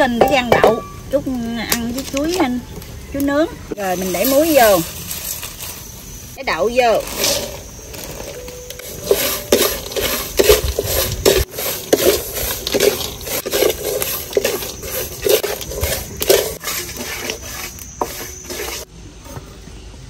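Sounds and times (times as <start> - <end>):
peanuts and salt scraping in wok: 0.0 - 18.9
wooden spatula stirring in wok: 6.8 - 18.9.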